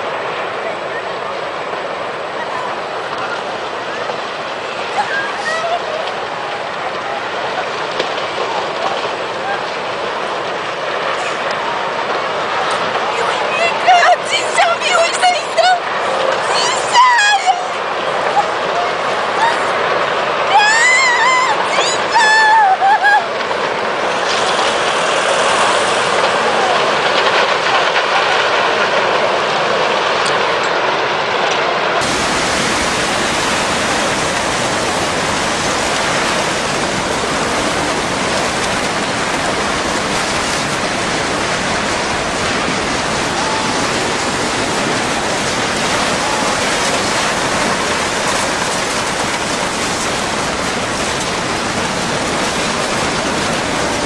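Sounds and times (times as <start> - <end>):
floodwater rushing: 0.0 - 54.0
deep rumble: 22.7 - 54.0.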